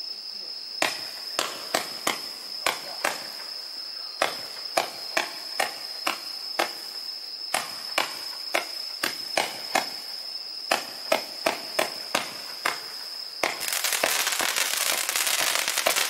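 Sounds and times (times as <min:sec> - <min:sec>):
crickets trilling: 0:00.0 - 0:16.0
fireworks launch reports: 0:00.7 - 0:06.8, 0:13.4 - 0:16.0.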